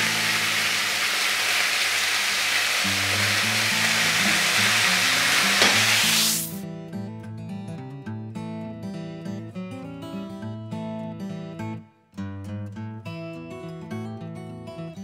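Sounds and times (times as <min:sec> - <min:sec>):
meat sizzling in a frying pan: 0:00.0 - 0:06.6
soft acoustic guitar music: 0:02.8 - 0:05.9, 0:06.5 - 0:15.0.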